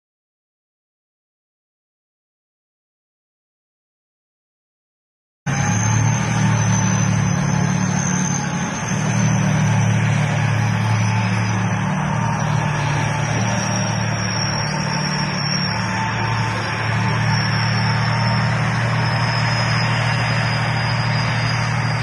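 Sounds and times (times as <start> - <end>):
heavy engine idling: 5.5 - 22.0
high whine: 5.5 - 22.0.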